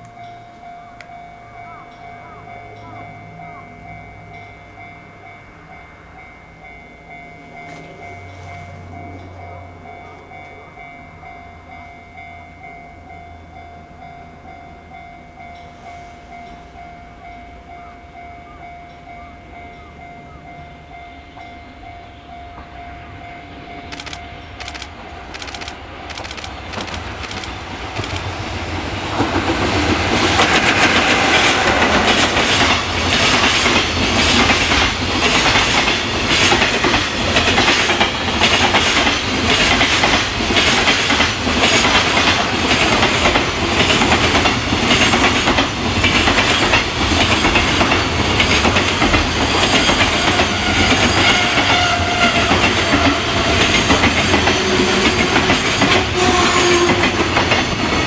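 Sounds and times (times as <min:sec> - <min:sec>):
electric locomotive passing: 0:00.0 - 0:58.0
clickety-clack over rail joints: 0:23.8 - 0:58.0.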